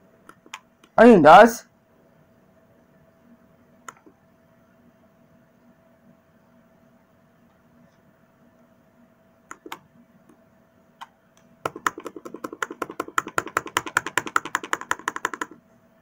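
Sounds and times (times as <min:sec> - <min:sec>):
typing on a keyboard: 0:09.5 - 0:09.8, 0:11.6 - 0:15.6.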